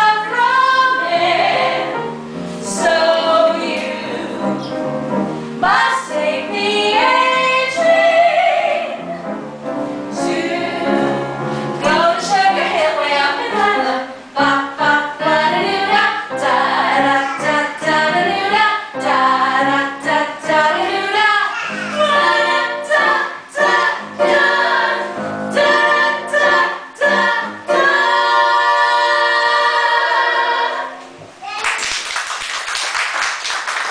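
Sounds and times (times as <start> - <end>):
women singing together: 0.0 - 5.0, 5.6 - 9.3, 10.1 - 31.1
musical accompaniment: 0.0 - 31.4.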